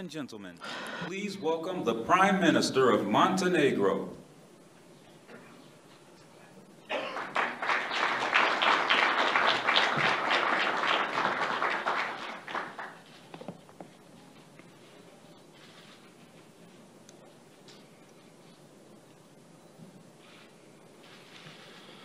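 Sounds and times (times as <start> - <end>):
audience applauding: 6.9 - 13.2.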